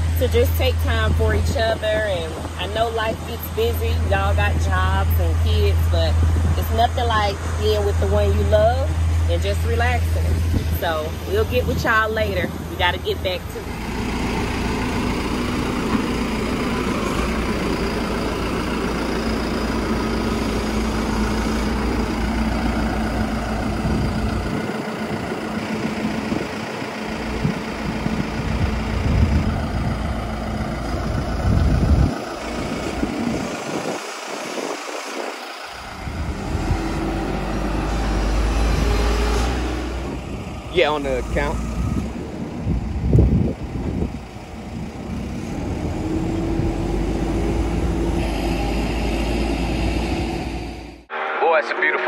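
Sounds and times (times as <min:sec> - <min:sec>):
large engine rumbling: 0:00.0 - 0:52.0.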